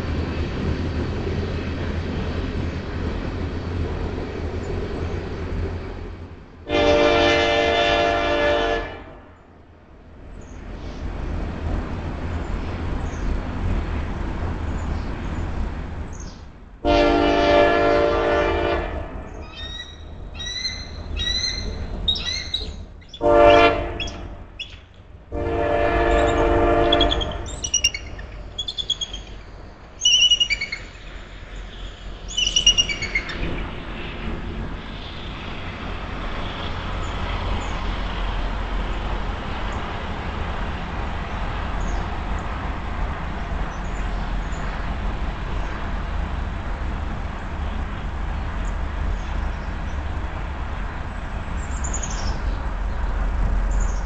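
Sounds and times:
train horn blasts: 0:06.7 - 0:09.4, 0:16.8 - 0:19.3, 0:23.2 - 0:24.4, 0:25.3 - 0:27.6
eagles piping chirps: 0:19.4 - 0:23.3, 0:26.2 - 0:31.1, 0:32.2 - 0:33.4.

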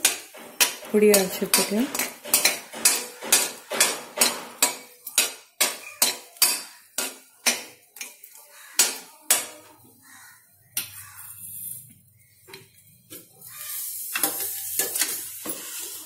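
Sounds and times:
metal spatula clinking in pan: 0:00.0 - 0:09.6.

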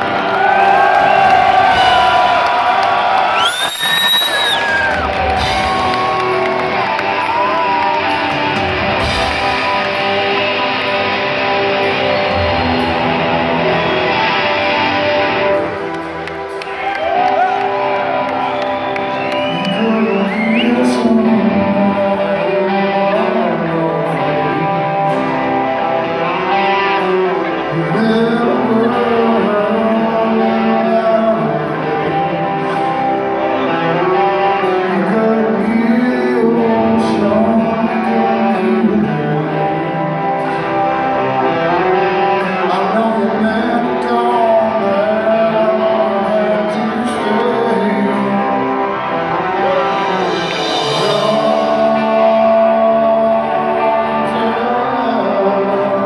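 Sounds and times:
electric guitar: 0:00.0 - 0:56.0
live rock band: 0:00.0 - 0:56.0
man singing: 0:19.1 - 0:56.0.

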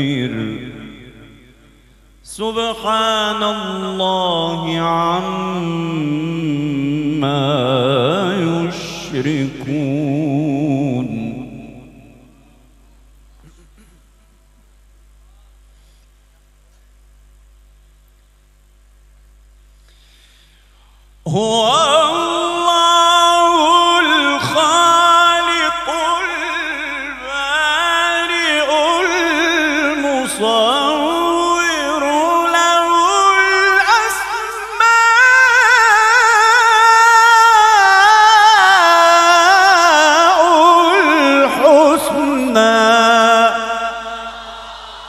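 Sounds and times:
man reciting in melodic chant: 0:00.0 - 0:12.6, 0:21.2 - 0:44.7
man breathing: 0:15.7 - 0:16.2, 0:19.8 - 0:21.1.

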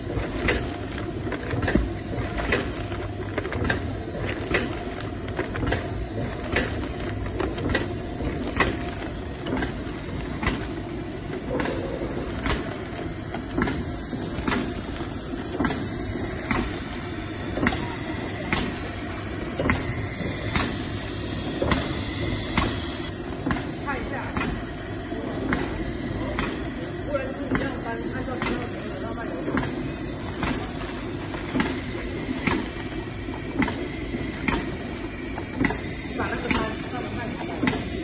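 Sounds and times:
packaging machine hum: 0:00.0 - 0:38.0.

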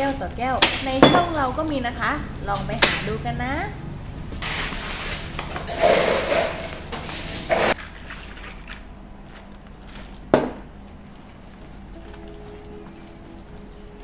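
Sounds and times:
liquid pouring onto ice: 0:07.5 - 0:09.0.

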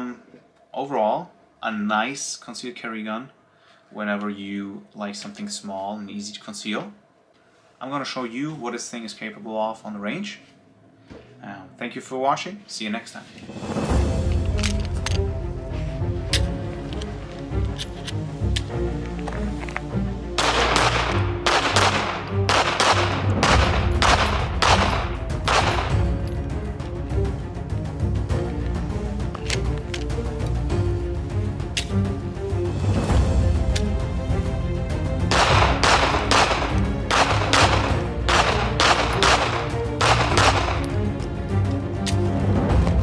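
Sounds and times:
background music: 0:00.0 - 0:43.0
pistol shots: 0:20.4 - 0:26.1, 0:35.3 - 0:40.9.

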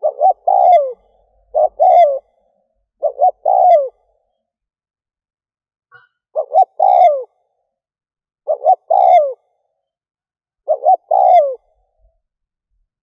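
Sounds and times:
dove cooing: 0:00.0 - 0:04.2, 0:06.4 - 0:07.4, 0:08.4 - 0:09.6, 0:10.6 - 0:12.1.

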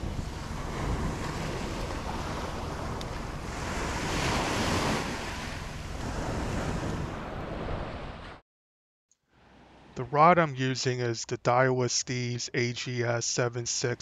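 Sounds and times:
ocean surf on a beach: 0:00.0 - 0:08.4
wind buffeting microphone: 0:00.0 - 0:08.4.

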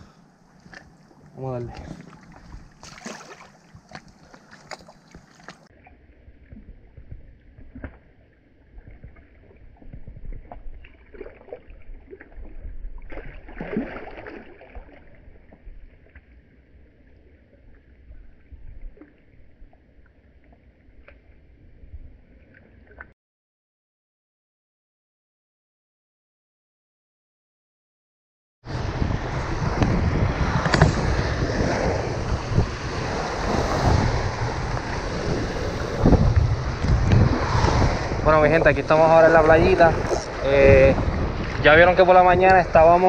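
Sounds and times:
water sloshing and splashing: 0:00.3 - 0:23.1, 0:33.1 - 0:43.0.

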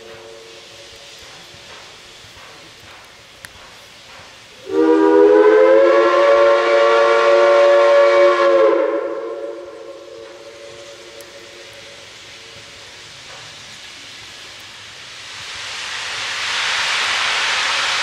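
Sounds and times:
steam whistle blast: 0:04.6 - 0:11.7.

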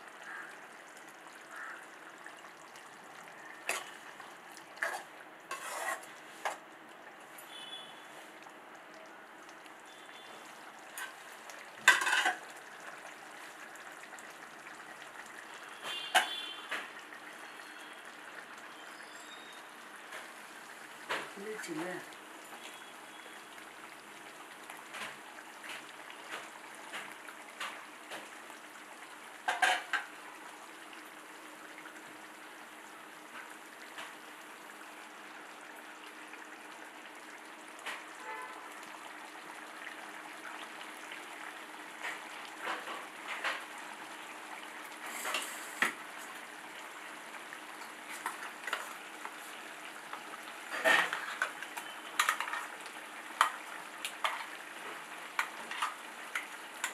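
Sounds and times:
gravy sizzling in a pan: 0:00.0 - 0:56.9
spatula scraping a pan: 0:03.7 - 0:04.0, 0:04.8 - 0:06.6, 0:11.9 - 0:12.4, 0:50.7 - 0:52.8.

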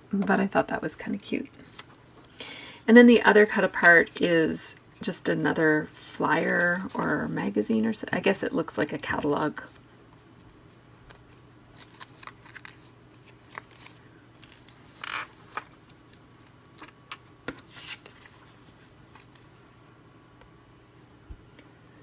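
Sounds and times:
paper rustle: 0:11.1 - 0:16.1, 0:17.5 - 0:19.5.

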